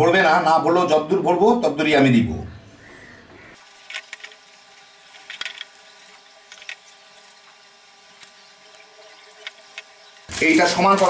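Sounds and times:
paper rustling: 9.4s - 11.0s.

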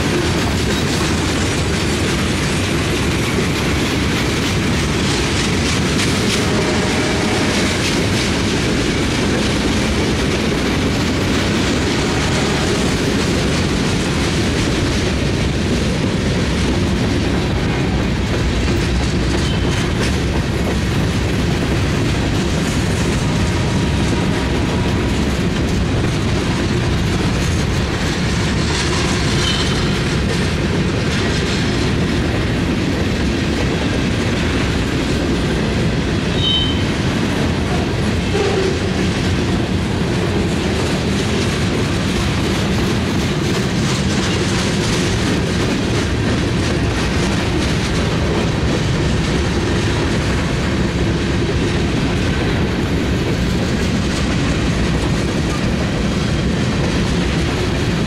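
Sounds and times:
clickety-clack over rail joints: 0.0s - 58.0s
train wheels rumbling on rails: 0.0s - 58.0s
high wheel squeals: 36.4s - 36.8s.

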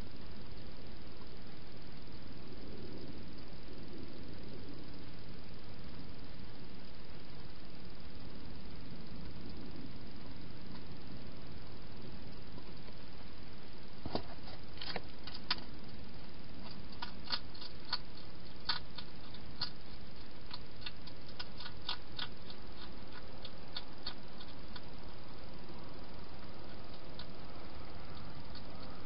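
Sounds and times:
steady hiss: 0.0s - 29.0s
hedgehog crunching food: 14.0s - 16.0s, 16.6s - 29.0s.

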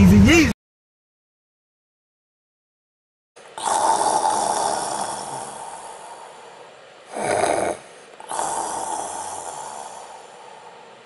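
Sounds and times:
man snoring: 3.4s - 11.0s.

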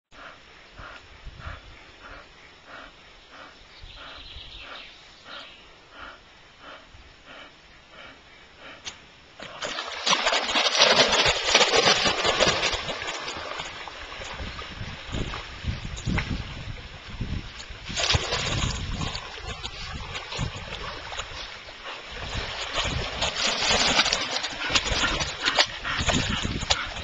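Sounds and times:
dog swimming: 0.2s - 8.8s, 9.4s - 15.9s, 17.8s - 27.0s
water splashing: 9.4s - 27.0s.

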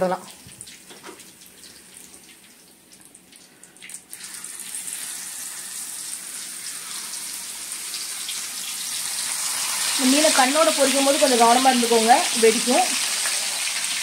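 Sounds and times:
fish sizzling in hot oil: 4.0s - 14.0s.

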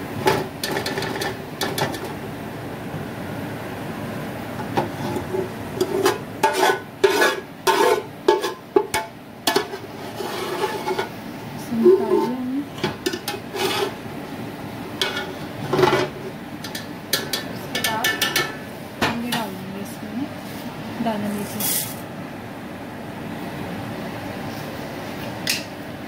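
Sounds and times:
hot oil frying: 0.0s - 11.6s, 12.4s - 22.1s
metal skimmer scraping a pot: 0.2s - 2.2s, 4.6s - 14.0s, 15.0s - 16.8s.

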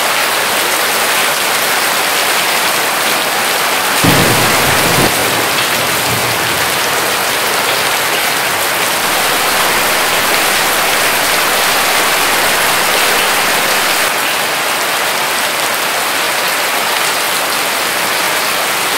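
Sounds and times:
hail and rain on paving: 0.0s - 18.9s.

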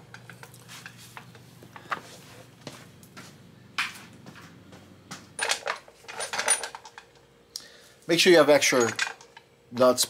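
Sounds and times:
tools clicking and clinking: 5.4s - 7.1s, 8.7s - 9.4s.

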